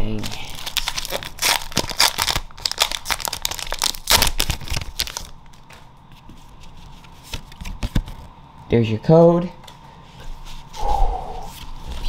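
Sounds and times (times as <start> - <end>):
foil wrapper crinkling and tearing: 0.0 - 5.6.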